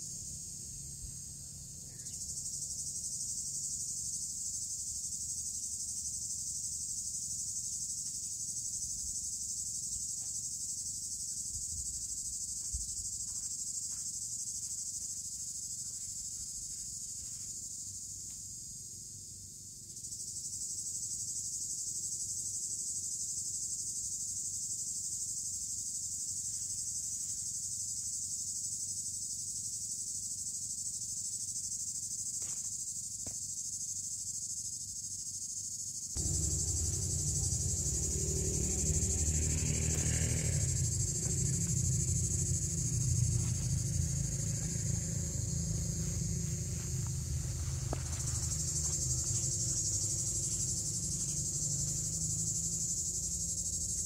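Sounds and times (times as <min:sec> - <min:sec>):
insect chorus chirring: 0:00.0 - 0:54.0
low rustling: 0:40.8 - 0:51.5.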